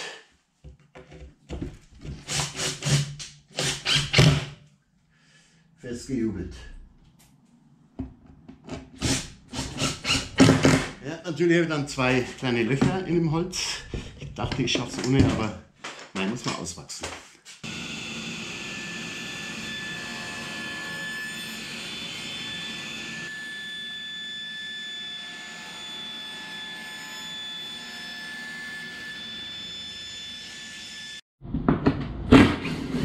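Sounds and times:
table saw whining: 0:17.6 - 0:31.2.

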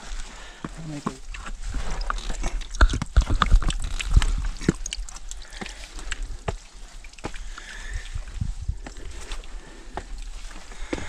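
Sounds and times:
footsteps scuffing on rock: 0:00.0 - 0:02.6, 0:05.5 - 0:11.0.

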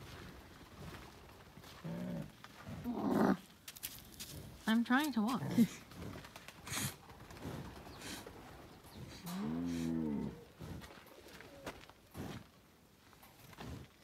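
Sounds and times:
bison call: 0:09.3 - 0:10.5.

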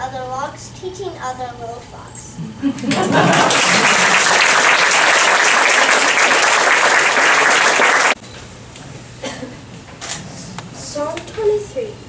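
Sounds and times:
audience applause: 0:02.9 - 0:08.2.

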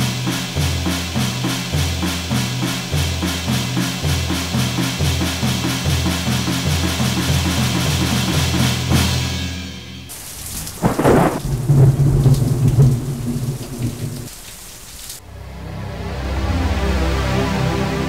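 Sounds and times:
music: 0:00.0 - 0:10.1, 0:15.2 - 0:18.0
thunder rolling: 0:10.1 - 0:14.4
steady rain: 0:10.1 - 0:15.2.

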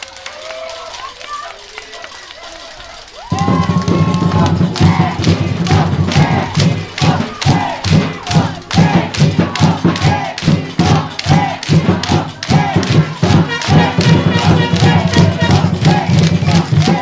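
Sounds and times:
music with steady beat: 0:03.3 - 0:17.0
sustained bass line: 0:13.2 - 0:16.9.

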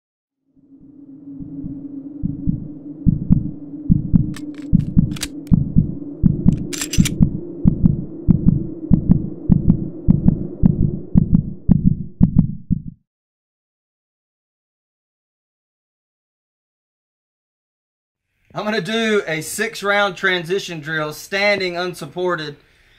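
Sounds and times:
low drone: 0:00.5 - 0:12.2
deep heartbeat-like pulses: 0:00.6 - 0:13.0
sharp ticks: 0:04.4 - 0:05.6.

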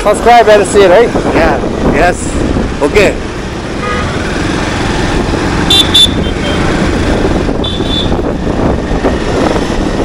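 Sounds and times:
wind and road noise: 0:00.0 - 0:10.0
high-pitched horn beeps: 0:05.7 - 0:06.7.

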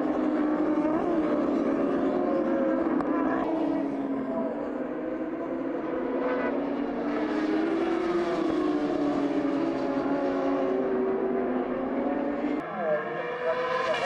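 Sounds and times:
motorcycle engines at high revs: 0:04.3 - 0:14.0.

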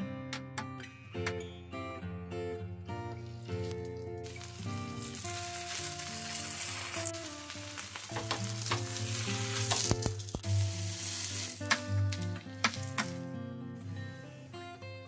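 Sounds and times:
soft instrumental music: 0:00.0 - 0:15.0
bread sizzling in hot oil: 0:03.6 - 0:13.2.

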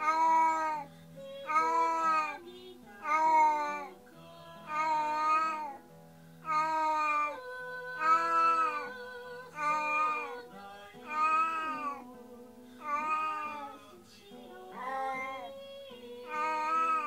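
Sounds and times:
cat meowing: 0:00.0 - 0:00.9, 0:03.0 - 0:03.9, 0:04.7 - 0:05.8, 0:06.4 - 0:07.4, 0:08.0 - 0:08.9, 0:11.0 - 0:12.0, 0:12.8 - 0:13.8, 0:16.3 - 0:17.0.

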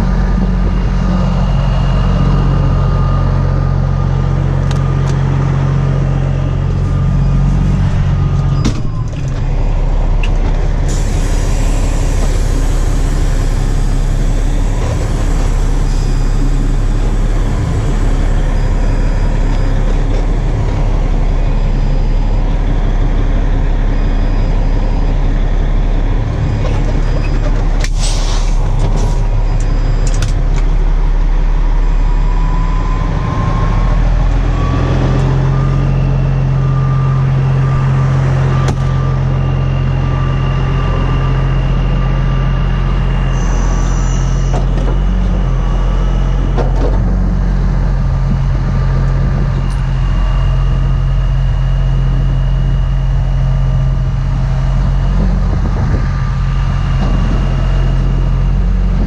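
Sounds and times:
diesel engine running: 0:00.0 - 0:59.0
thin high whine: 0:10.9 - 0:27.3, 0:27.9 - 0:46.4.

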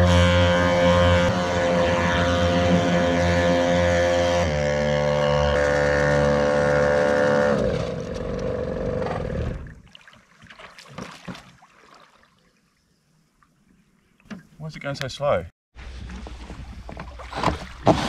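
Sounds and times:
small two-stroke engines running: 0:00.0 - 0:09.6
water splashing and sloshing: 0:09.0 - 0:14.6, 0:15.8 - 0:18.0.

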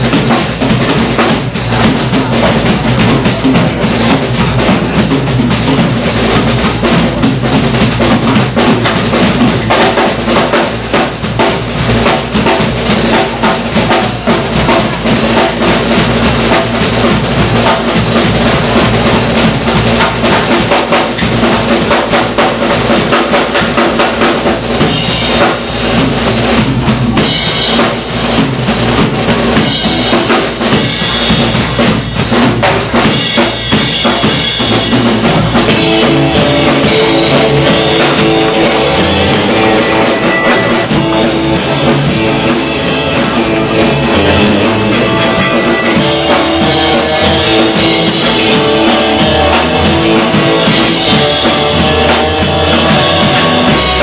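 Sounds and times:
band playing: 0:00.0 - 0:54.0
drum kit solo: 0:00.0 - 0:54.0
cymbals crashing: 0:27.2 - 0:54.0.

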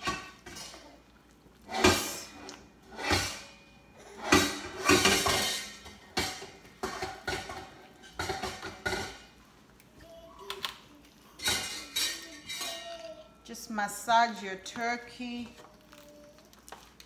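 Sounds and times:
aluminium foil crinkling: 0:15.2 - 0:17.0
wet squishing of butter on meat: 0:15.6 - 0:17.0.

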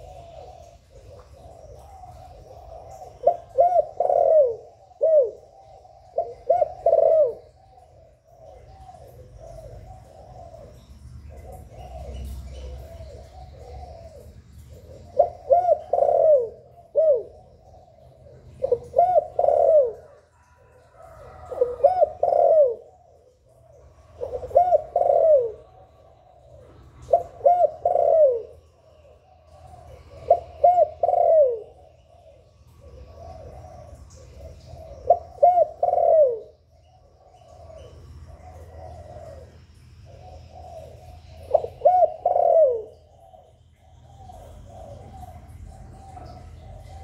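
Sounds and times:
dove cooing: 0:00.0 - 0:47.0.

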